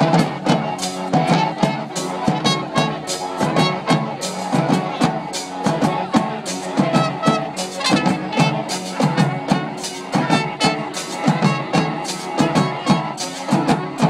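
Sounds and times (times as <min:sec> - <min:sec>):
brass horns playing a tune: 0:00.0 - 0:14.0
steady drum beat: 0:00.0 - 0:14.0.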